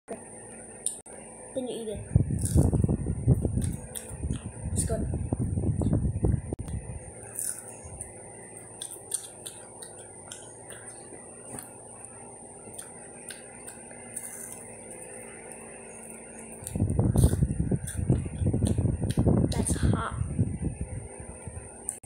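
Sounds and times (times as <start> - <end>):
chewing crunchy food: 2.4 - 2.8, 3.6 - 4.5, 7.2 - 19.2.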